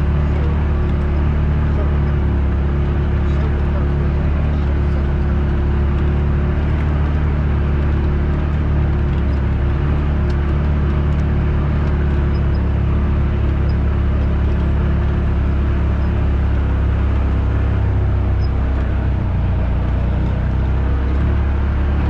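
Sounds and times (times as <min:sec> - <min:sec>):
off-road vehicle engine droning: 0:00.0 - 0:22.0.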